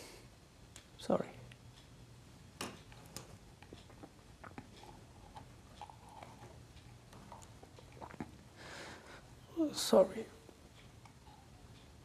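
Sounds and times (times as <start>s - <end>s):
man breathing softly: 8.6s - 9.4s.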